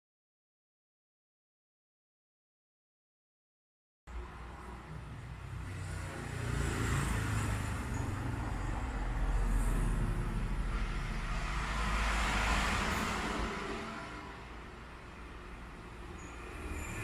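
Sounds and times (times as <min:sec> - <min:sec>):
road traffic passing: 0:04.1 - 0:17.0.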